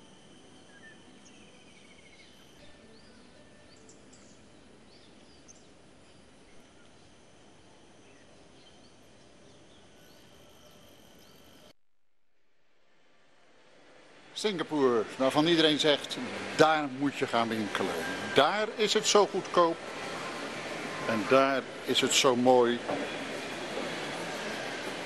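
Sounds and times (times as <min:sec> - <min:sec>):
thin steady high tone: 0:00.0 - 0:11.7
bird chirps: 0:00.4 - 0:07.2.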